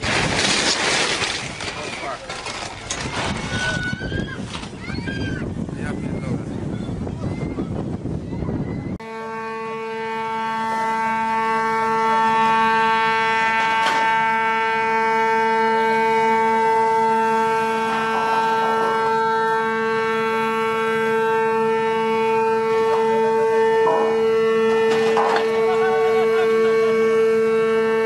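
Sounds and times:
wind noise: 0:00.0 - 0:09.0
ship's horn long blast: 0:09.0 - 0:28.0.

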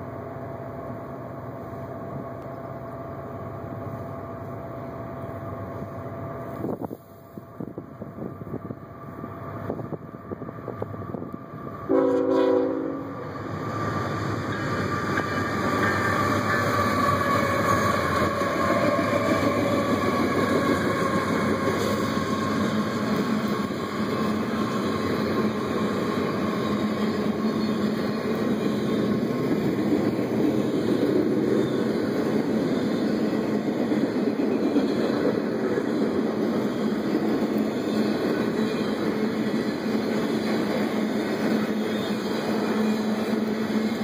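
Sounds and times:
wheels rumbling on rail: 0:00.0 - 0:44.0
locomotives passing: 0:12.9 - 0:44.0.

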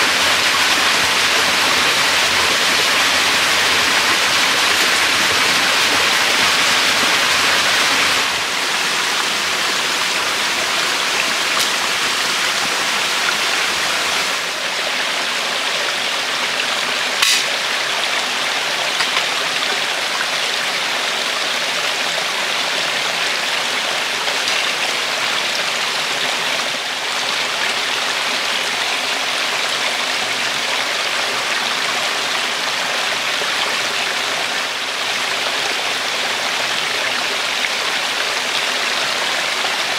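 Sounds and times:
stream water rushing: 0:00.0 - 0:39.9
sharp click: 0:17.2 - 0:17.6.

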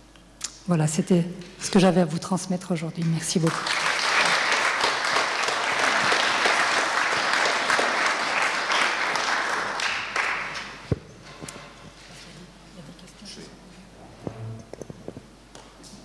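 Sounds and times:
audience applauding: 0:03.1 - 0:10.8.

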